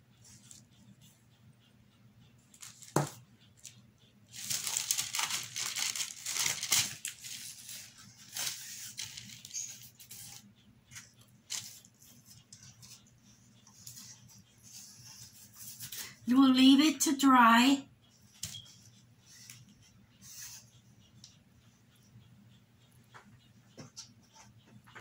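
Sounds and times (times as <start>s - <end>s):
poster board crinkling and rustling: 4.4s - 9.5s.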